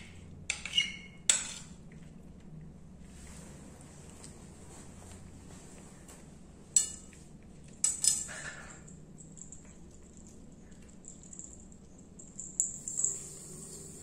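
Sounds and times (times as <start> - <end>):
collar bell clinking on ceramic plate: 7.9 - 13.3.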